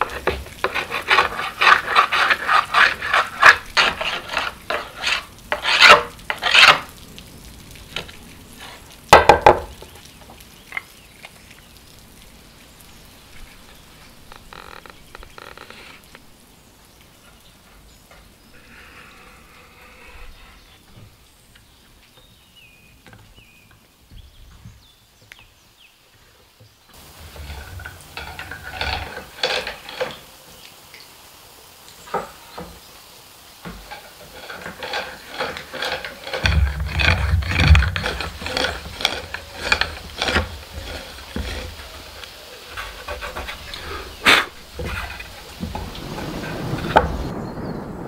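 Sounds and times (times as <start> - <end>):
hand tool rasping wood: 0.0 - 6.9, 27.0 - 30.2, 33.7 - 45.8
low rumble: 45.6 - 48.0.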